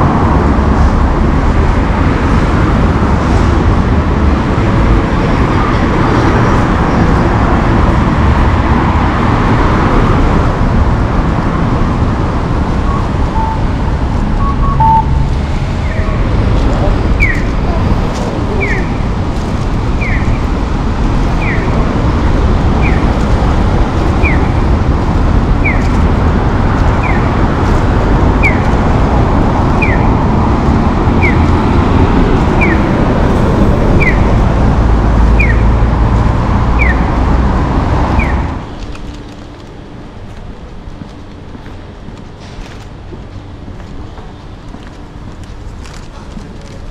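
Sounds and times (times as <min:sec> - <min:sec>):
steady traffic noise: 0:00.0 - 0:46.9
falling electronic chirp: 0:12.8 - 0:13.8, 0:14.4 - 0:15.3.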